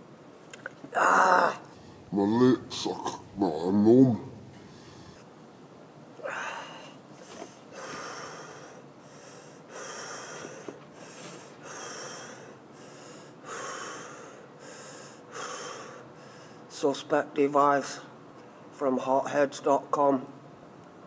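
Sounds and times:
man breathing hard: 0:06.2 - 0:16.7.

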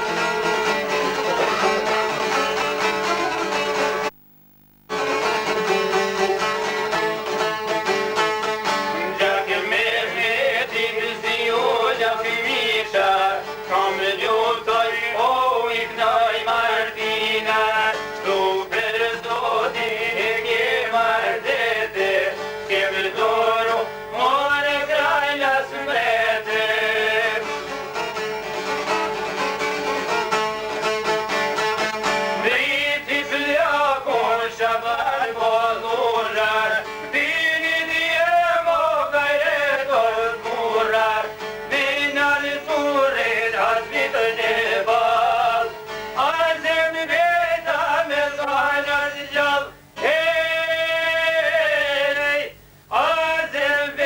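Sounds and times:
man singing folk song: 0:00.0 - 0:04.1, 0:06.2 - 0:30.2, 0:32.2 - 0:54.0
plucked lutes: 0:00.0 - 0:04.1, 0:04.9 - 0:09.6, 0:27.3 - 0:32.5.

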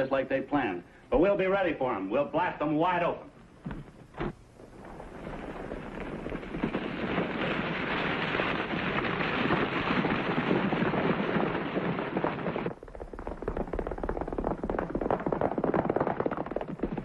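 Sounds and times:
horses galloping: 0:04.6 - 0:17.0
clatter of hooves: 0:04.9 - 0:17.0.

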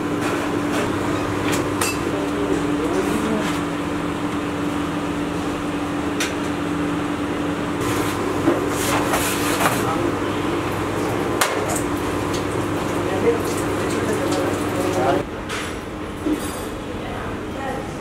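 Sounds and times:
kitchen machine hum: 0:00.0 - 0:18.0
baking tray sliding: 0:07.8 - 0:10.0.

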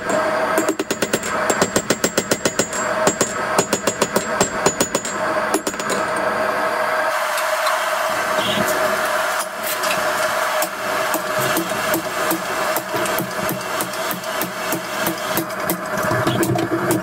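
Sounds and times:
hammer striking hot steel on anvil: 0:00.0 - 0:06.2, 0:09.4 - 0:17.0
steady rushing noise and hum: 0:04.4 - 0:17.0.

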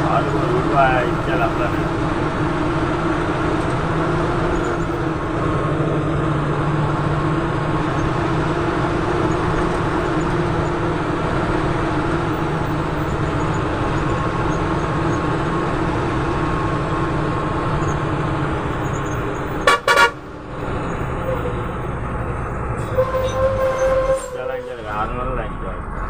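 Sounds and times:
bus engine and road noise: 0:00.0 - 0:26.0
horn toots: 0:19.6 - 0:20.2, 0:22.8 - 0:24.8.

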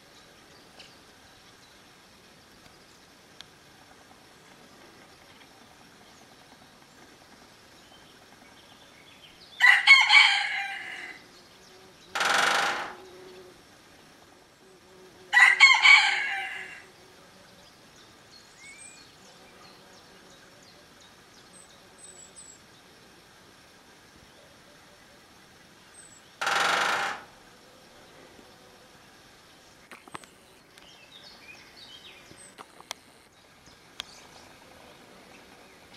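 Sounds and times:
woodpecker drumming on metal roof: 0:12.1 - 0:13.2, 0:26.4 - 0:27.4
faint bird chirps: 0:16.3 - 0:22.9.

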